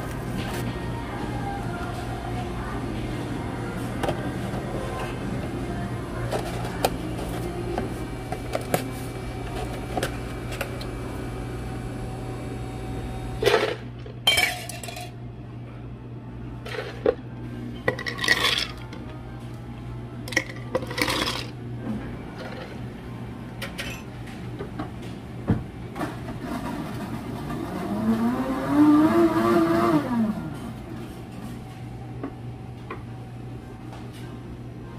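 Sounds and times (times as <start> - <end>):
steady low hum: 0.0 - 27.6
ice cubes clinking into glasses: 14.3 - 15.2, 17.9 - 18.9, 20.3 - 21.5.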